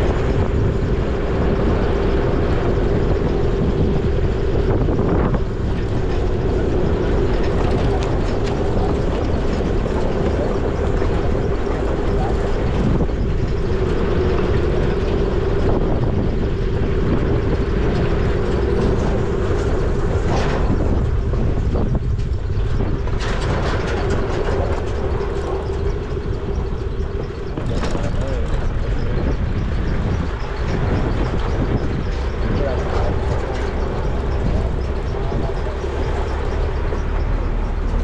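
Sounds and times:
vehicle engine and road noise: 0.0s - 38.0s.

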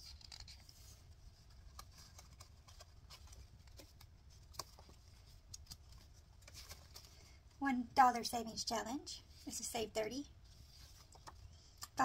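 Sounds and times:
booklet pages turning: 0.0s - 7.3s, 10.5s - 12.0s.

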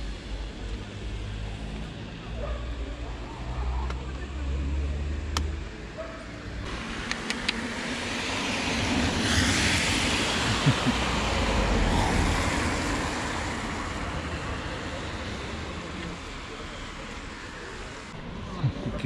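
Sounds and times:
car passing by: 6.7s - 18.2s
sharp clicks: 7.0s - 7.6s.

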